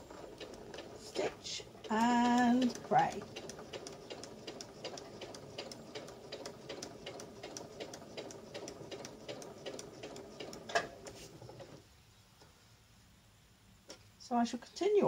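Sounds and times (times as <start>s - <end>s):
sewing machine clack: 0.0s - 11.8s
sewing machine motor hum: 0.0s - 11.8s
sewing machine needle ticking: 0.1s - 11.8s.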